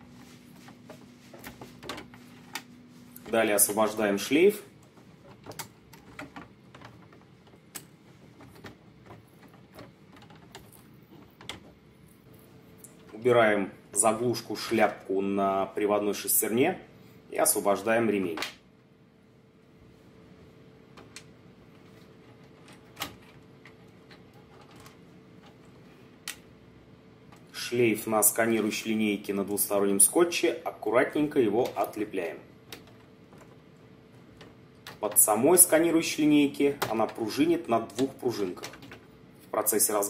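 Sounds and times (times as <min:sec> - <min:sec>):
faint steady hum: 0:00.0 - 0:40.0
plastic parts clicking and tapping: 0:04.8 - 0:11.9, 0:20.9 - 0:26.5, 0:32.6 - 0:35.8, 0:36.6 - 0:39.1.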